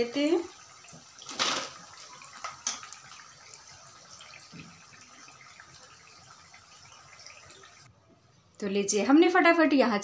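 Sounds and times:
deep-frying in hot oil sizzling: 0.0s - 7.9s.

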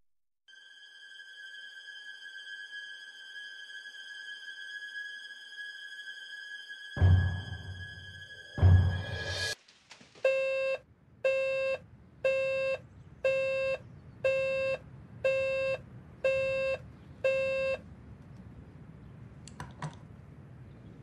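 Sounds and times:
digital alarm clock beeping: 10.3s - 17.8s.

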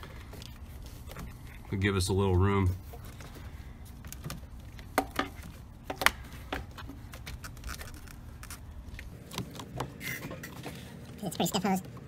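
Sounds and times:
rubber hose rubbing and tapping: 2.6s - 10.9s.

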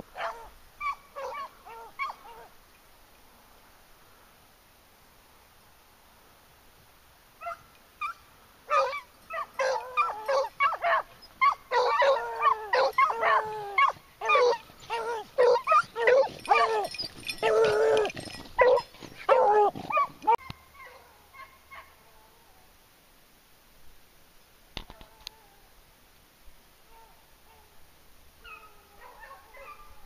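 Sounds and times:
hounds baying: 0.1s - 2.5s, 7.4s - 22.0s, 28.4s - 30.0s
dogs yelping: 0.2s - 2.5s, 7.4s - 21.9s, 28.4s - 30.0s.

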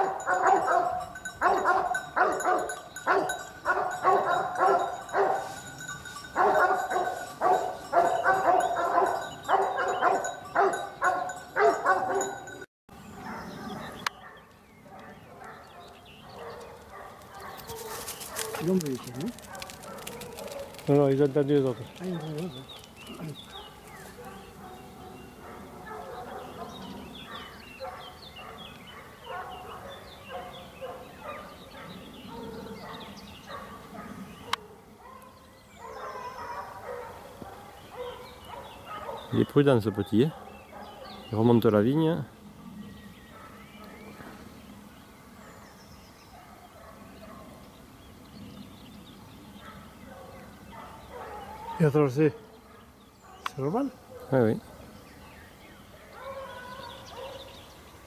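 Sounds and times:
dog barking: 0.0s - 5.6s, 6.4s - 12.6s, 13.2s - 20.8s, 22.0s - 39.4s, 40.2s - 41.3s, 46.3s - 47.6s, 49.6s - 51.9s, 52.6s - 54.8s, 56.0s - 57.5s.

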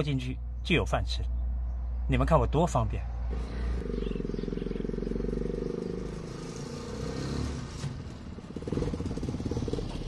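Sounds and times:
small vehicle engine droning: 3.2s - 10.0s.

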